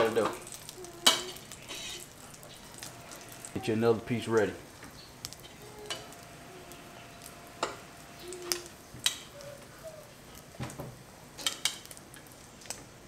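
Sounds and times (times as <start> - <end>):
bread sizzling in butter: 0.0 - 13.0.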